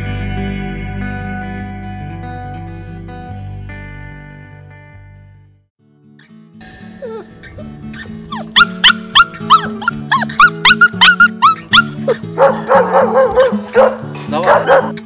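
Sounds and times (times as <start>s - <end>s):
background music: 0.0s - 15.0s
puppy whimpering and yelping: 7.0s - 13.4s
adult dog barking: 12.3s - 15.0s.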